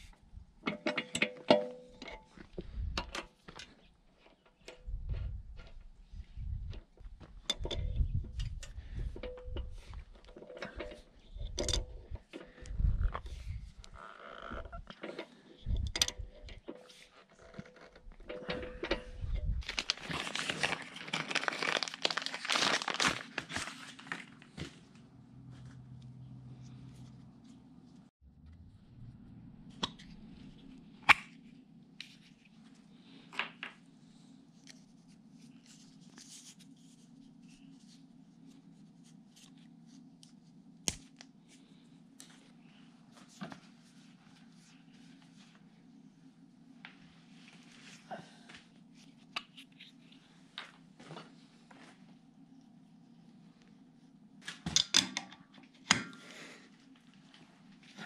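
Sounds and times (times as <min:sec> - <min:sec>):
low hum: 0:04.6 - 0:16.8, 0:17.4 - 0:20.4, 0:25.2 - 0:31.8
crinkling crackling rustle: 0:17.1 - 0:24.9.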